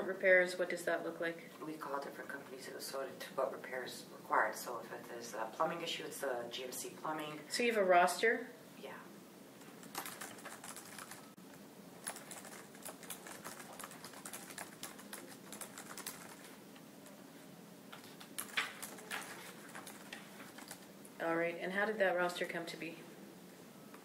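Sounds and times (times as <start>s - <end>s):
computer keyboard typing: 9.8s - 11.4s, 12.0s - 17.2s, 18.0s - 20.9s.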